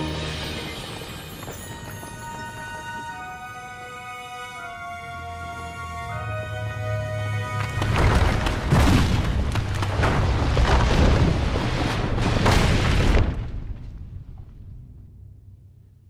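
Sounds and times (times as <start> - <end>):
orchestral music: 0.0 - 9.9
heavy rock crashes: 7.8 - 14.6
rumble of falling rock: 7.8 - 15.0.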